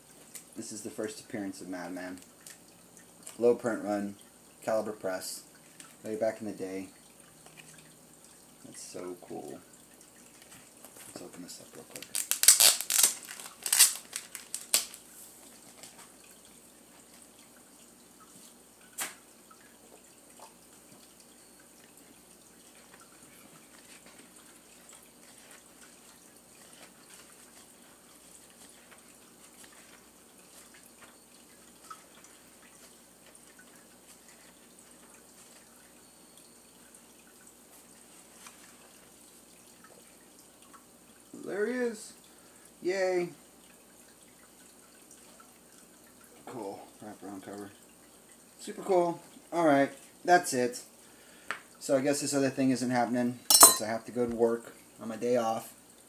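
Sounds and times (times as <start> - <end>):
faint rustling of wrapping: 10.2 - 16.2, 22.0 - 36.0, 37.7 - 39.4
packaging ripping and crinkling: 11.9 - 15.0.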